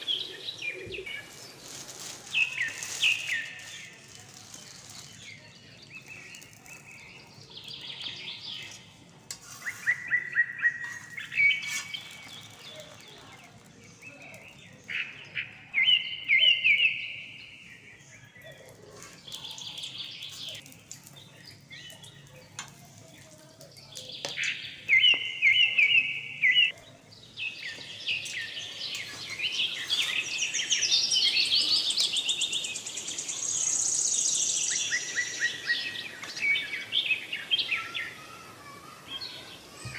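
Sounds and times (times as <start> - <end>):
small birds chirping and trilling: 0.0 - 39.9.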